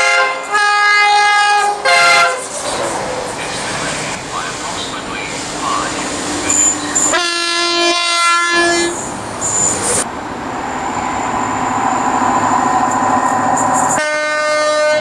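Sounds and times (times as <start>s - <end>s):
train horn blast: 0.0s - 2.5s, 6.5s - 9.0s, 13.9s - 15.0s
train rumbling on rails: 0.0s - 15.0s.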